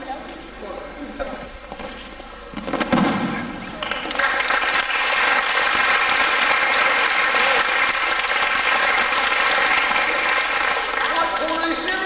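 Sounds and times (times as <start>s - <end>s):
children clapping: 3.7s - 12.0s.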